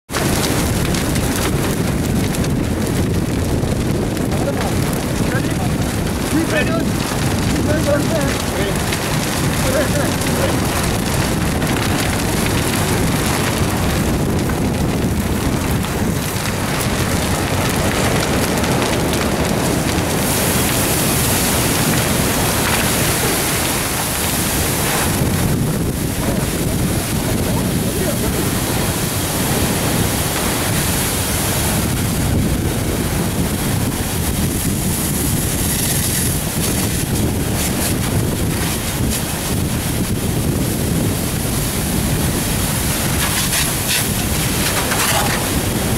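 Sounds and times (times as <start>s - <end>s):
fire burning with loud rushing: 0.0s - 45.9s
wind on the microphone: 0.1s - 45.9s
fire hose water stream hissing: 16.3s - 45.9s.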